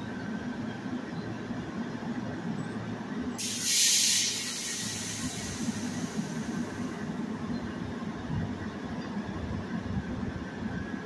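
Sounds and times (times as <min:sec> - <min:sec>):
train humming: 0:00.0 - 0:11.0
compressed air hiss: 0:03.4 - 0:07.0.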